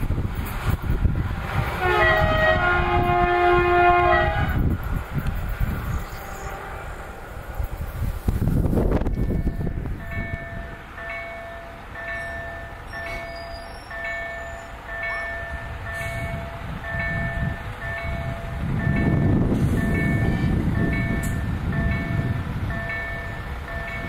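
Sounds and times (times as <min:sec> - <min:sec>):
level-crossing warning bell: 0:09.0 - 0:24.0.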